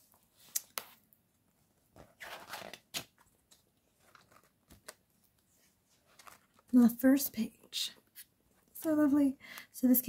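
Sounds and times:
page turning rustle: 1.9s - 6.8s.

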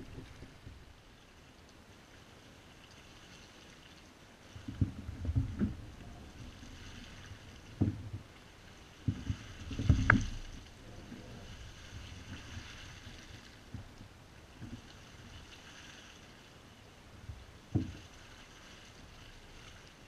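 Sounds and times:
thumps on kayak: 17.7s - 18.0s.

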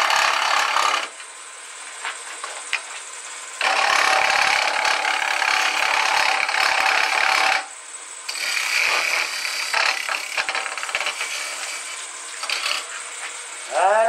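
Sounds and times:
lathe tool cutting wood: 0.0s - 1.1s, 3.6s - 7.7s, 8.3s - 13.2s.

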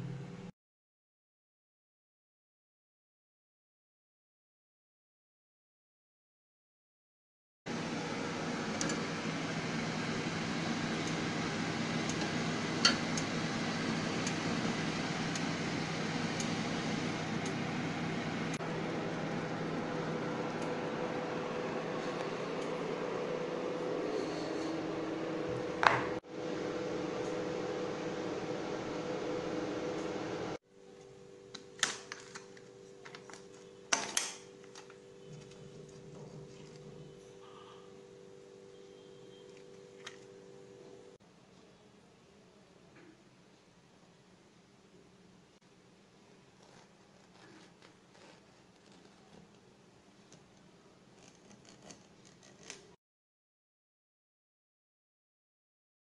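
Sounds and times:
oven fan humming: 7.7s - 41.2s.

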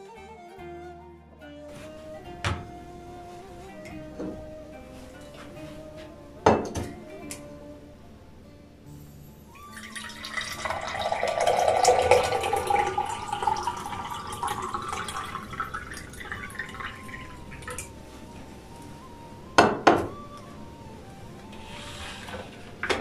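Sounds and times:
liquid pouring into a glass: 9.6s - 17.9s.

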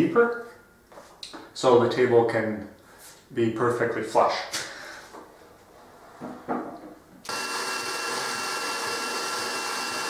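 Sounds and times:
cordless drill boring into wood: 7.3s - 10.0s.

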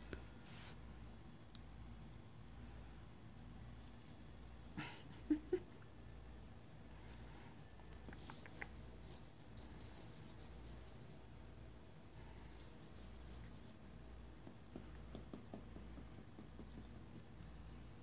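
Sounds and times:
kitten claws scrabbling on carpet: 8.0s - 9.5s.

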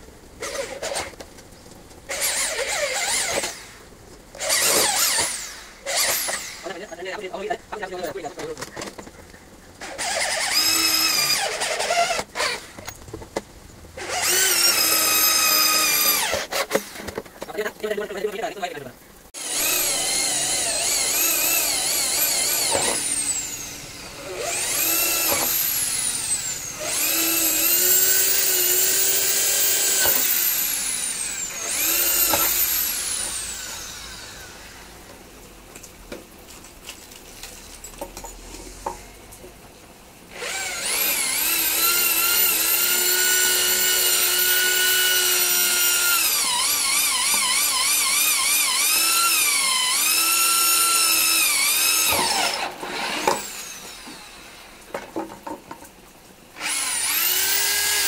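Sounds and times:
electric drill whining: 2.1s - 3.8s, 4.4s - 6.8s, 9.8s - 12.9s, 14.0s - 17.0s, 19.4s - 35.0s, 40.3s - 54.8s, 56.6s - 58.0s
small knocks: 54.9s - 56.0s.

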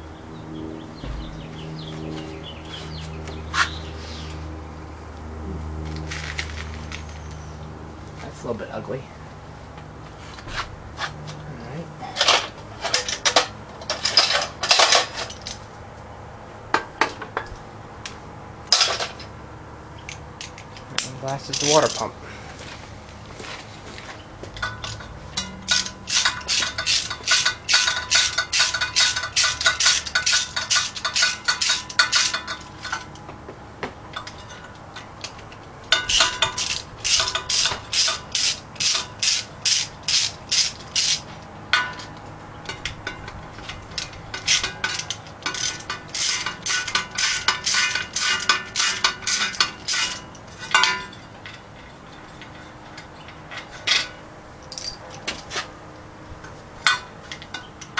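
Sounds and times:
socket ratchet clicking: 25.6s - 32.4s, 36.0s - 41.2s.

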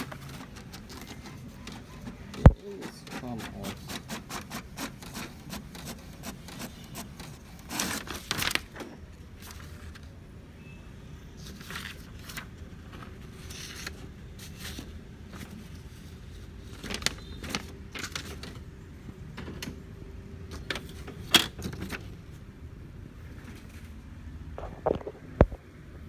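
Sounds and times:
paper rustling: 0.0s - 10.2s, 11.4s - 18.8s.

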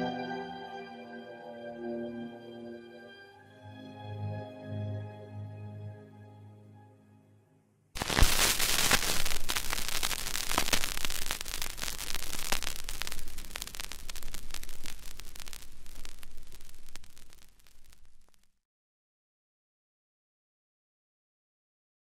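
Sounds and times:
vinyl record crackle and pops: 8.0s - 18.6s.

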